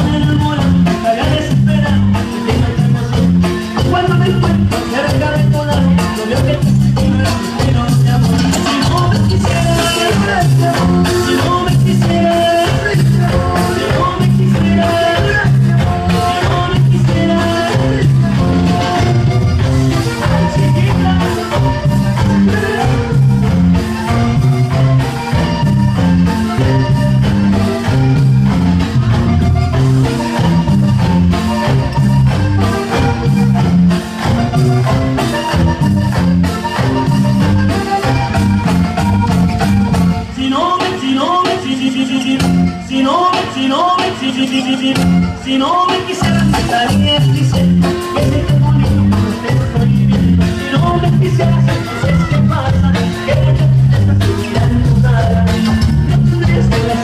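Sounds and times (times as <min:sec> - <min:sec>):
latin dance music: 0:00.0 - 0:57.0.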